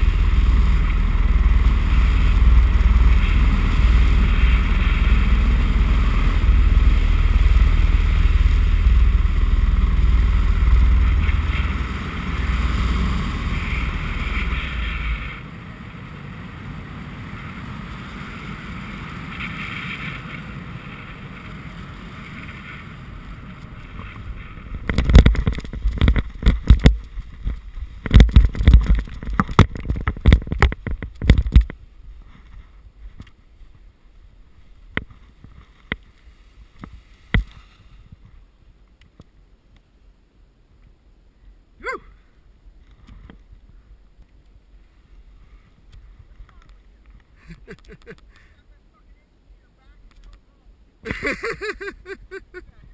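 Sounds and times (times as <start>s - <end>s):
paramotor engine running: 0.0s - 27.0s
wind rush: 0.0s - 38.6s
buffeting and thumps on microphone: 23.8s - 33.3s.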